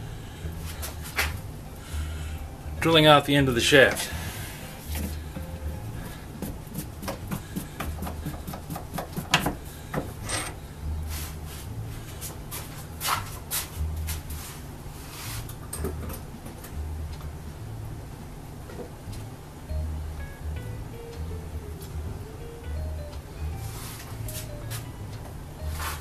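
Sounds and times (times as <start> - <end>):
pulsing low hum: 0.0 - 2.8, 4.0 - 8.5
metal tools clinking and scraping: 10.2 - 10.6.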